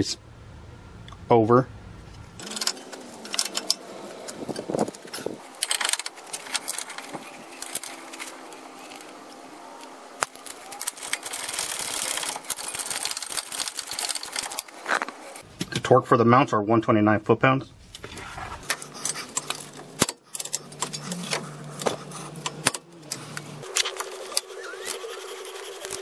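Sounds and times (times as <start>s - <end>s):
hand ratchet clicking rapidly: 10.2s - 14.7s.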